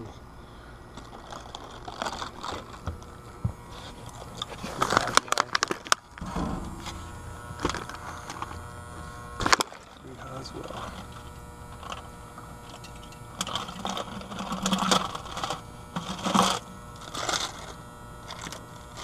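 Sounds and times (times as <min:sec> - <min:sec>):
faint steady hum: 0:00.0 - 0:19.0
clicks and knocks on metal grille: 0:06.2 - 0:08.6.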